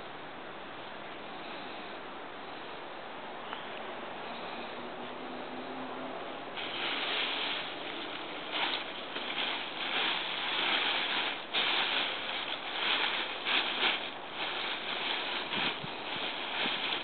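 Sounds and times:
tent fabric crinkling and rustling: 0:06.6 - 0:17.0.

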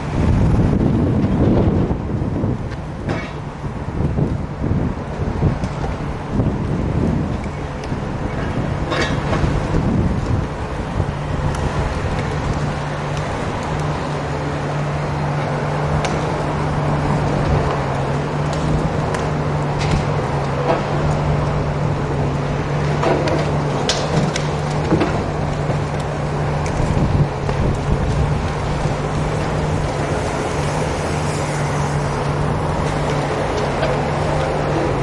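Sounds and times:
excavator engine running: 0:00.0 - 0:35.0
concrete cracking and clattering: 0:07.4 - 0:10.6, 0:22.6 - 0:35.0.

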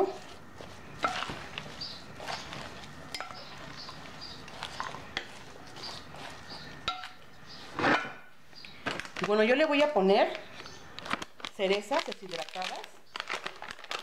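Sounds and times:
lettuce leaves rustling: 0:00.0 - 0:14.0.

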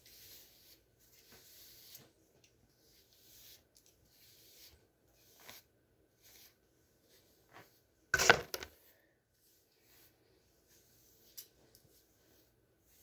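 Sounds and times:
comb brushing through hair: 0:00.0 - 0:13.0.

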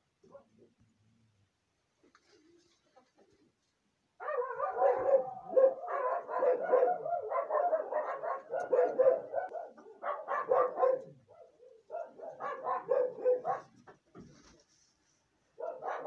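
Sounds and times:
dog barking rapidly: 0:04.2 - 0:13.8, 0:15.6 - 0:16.0.

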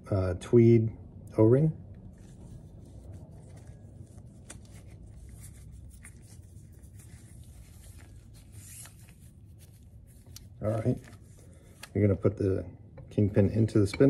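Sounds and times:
low steady hum: 0:00.0 - 0:14.0
light handling clicks and rubs: 0:02.0 - 0:12.0.

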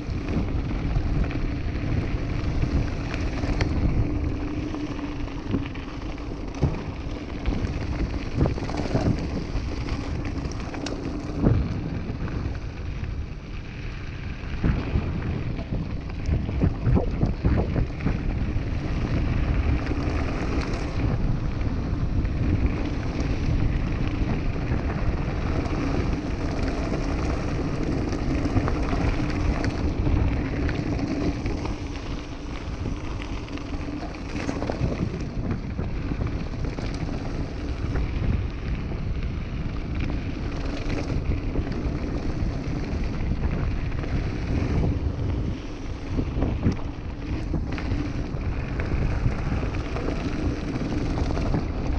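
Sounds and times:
tyres crunching over gravel: 0:00.0 - 0:13.6, 0:14.4 - 0:51.9
wind rushing over microphone: 0:00.0 - 0:51.9
bike knocks and rattles: 0:00.1 - 0:12.1.

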